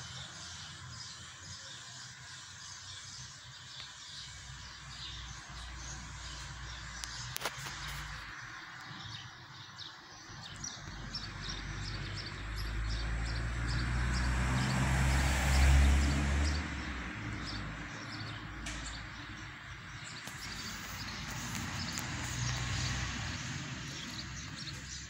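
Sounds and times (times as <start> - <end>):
small birds chirping: 0.0 - 25.0
vehicle passing: 10.5 - 25.0.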